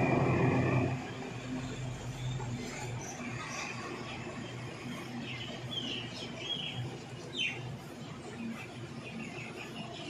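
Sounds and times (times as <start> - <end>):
birds chirping: 5.0 - 10.0.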